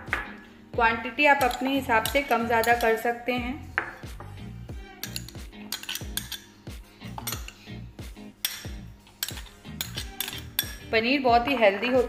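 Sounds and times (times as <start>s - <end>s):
spoon clinking against glass bowls: 1.4s - 3.1s, 5.0s - 7.8s, 8.4s - 10.9s.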